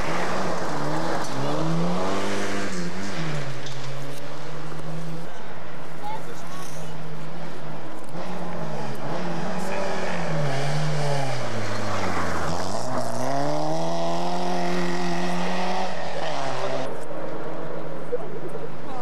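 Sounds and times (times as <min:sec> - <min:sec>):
rally car engine revving: 0:00.0 - 0:05.3, 0:08.0 - 0:17.1.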